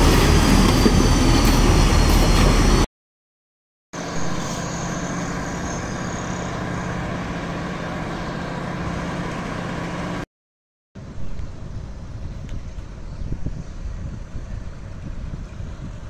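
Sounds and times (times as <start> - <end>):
distant vehicle engine hum: 4.0 - 10.2.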